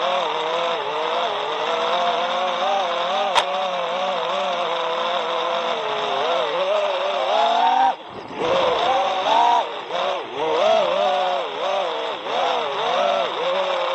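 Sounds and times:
quadcopter motors whining: 0.0s - 13.9s
sharp click: 3.3s - 3.6s.

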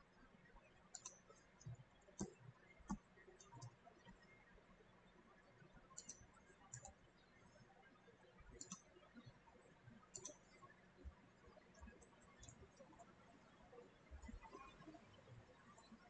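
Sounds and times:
keyboard and mouse clicks: 0.9s - 4.1s, 5.9s - 7.0s, 8.5s - 9.4s, 10.1s - 10.5s, 11.8s - 13.0s.

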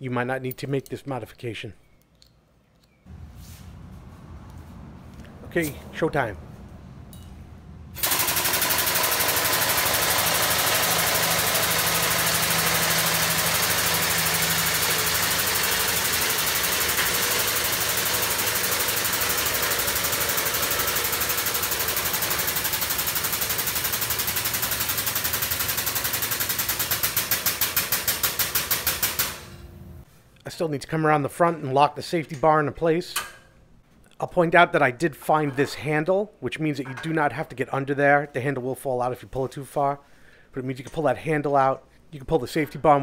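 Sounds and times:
air-driven hydraulic pump chattering: 8.0s - 29.5s.

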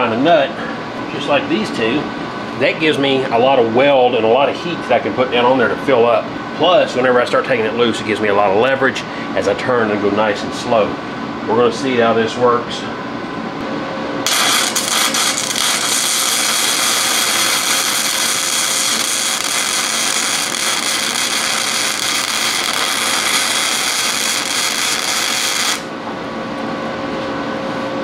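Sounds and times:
air conditioner humming: 0.0s - 28.0s
arc welding crackle: 14.2s - 25.9s.

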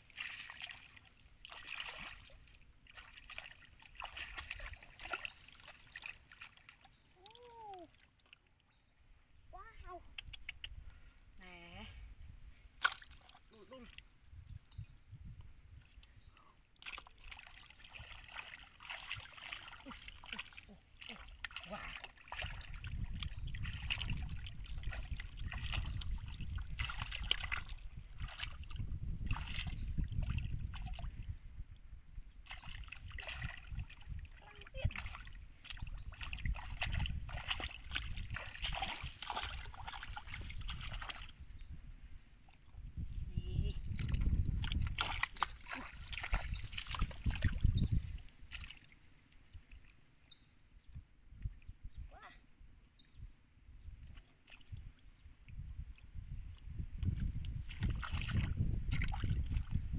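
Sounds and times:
hands splashing in muddy water: 0.0s - 8.4s, 12.8s - 14.0s, 16.8s - 31.3s, 32.4s - 41.5s, 43.9s - 49.0s, 56.9s - 59.9s.

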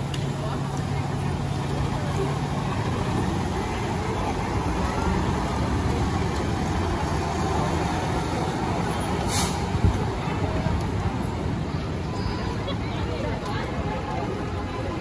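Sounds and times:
diesel engine rumbling past: 0.0s - 12.8s
brief hiss: 9.2s - 9.7s.

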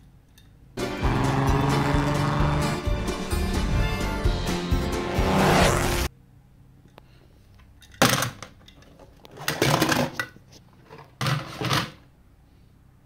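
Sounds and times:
toy cars clattering in plastic bowl: 7.8s - 12.0s.

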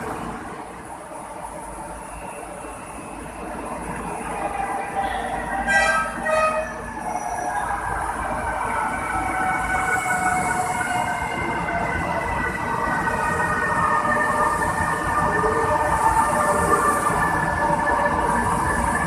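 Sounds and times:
train horn blasts: 5.7s - 6.8s.

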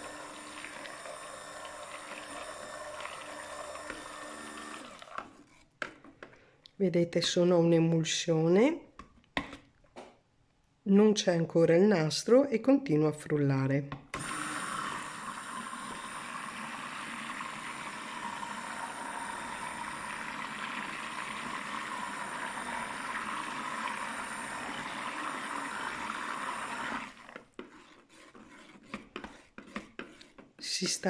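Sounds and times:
stick blender running in liquid: 0.0s - 5.6s, 14.2s - 29.4s.

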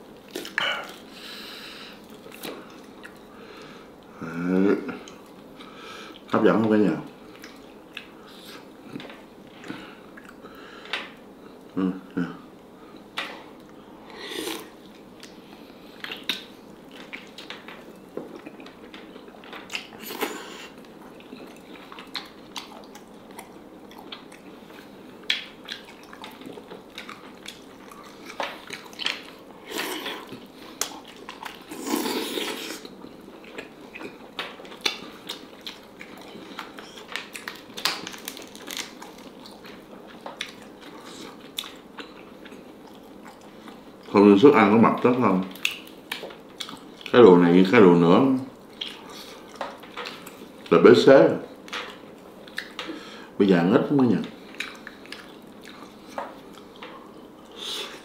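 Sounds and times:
person chewing and biting: 18.3s - 43.8s, 54.5s - 56.8s.

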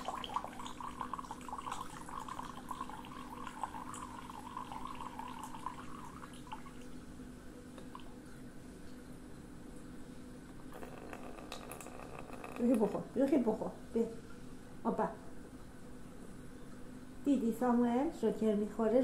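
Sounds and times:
water trickling into bowl: 0.0s - 9.1s, 10.5s - 13.6s.

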